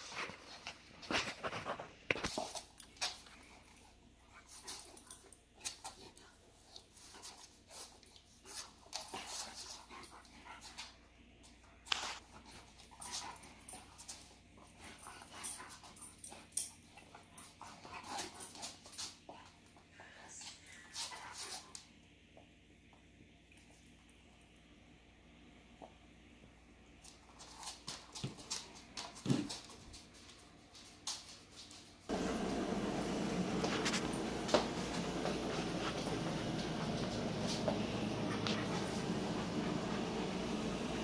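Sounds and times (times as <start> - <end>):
paws scuffling on wooden floor: 0.0 - 21.8, 27.0 - 41.0
soft dog sounds: 27.0 - 40.8.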